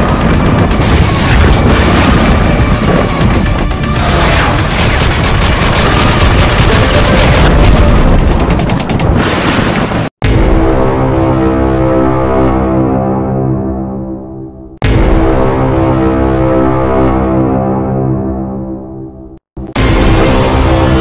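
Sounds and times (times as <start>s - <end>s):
booms: 0.0s - 11.0s
rapid automatic gunfire: 4.0s - 9.3s
loud music: 19.7s - 21.0s.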